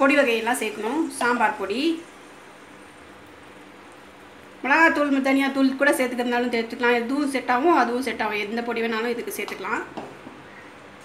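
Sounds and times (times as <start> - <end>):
food sizzling in oil: 0.0 - 6.2.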